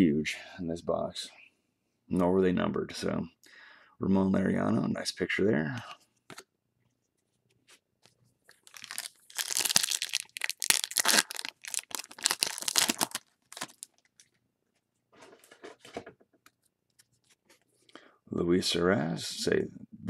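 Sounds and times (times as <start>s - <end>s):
foil wrapper tearing and crinkling: 8.5s - 14.4s.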